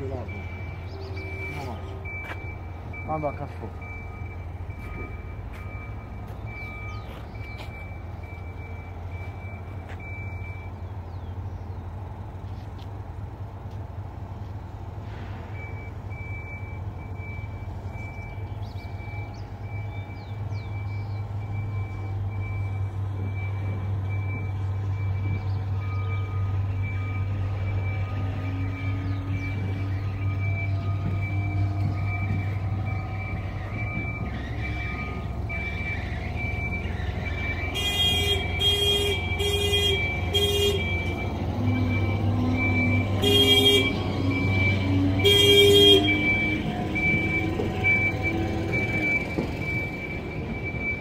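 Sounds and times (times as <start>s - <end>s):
warning beeper: 27.1s - 51.0s.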